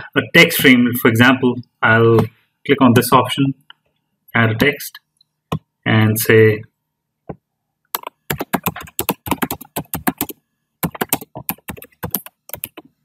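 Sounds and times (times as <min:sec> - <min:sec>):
typing on computer keyboard: 0:08.0 - 0:12.9.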